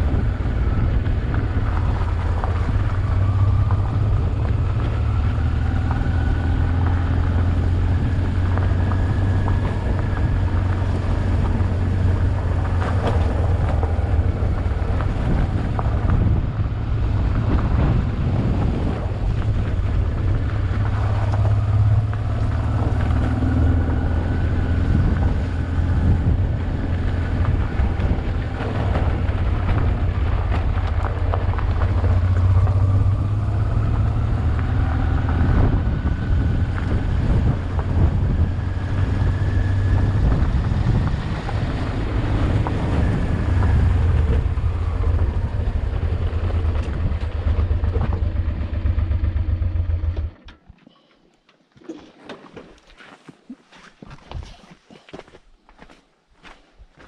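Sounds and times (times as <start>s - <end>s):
motorcycle engine low drone: 0.0s - 50.8s.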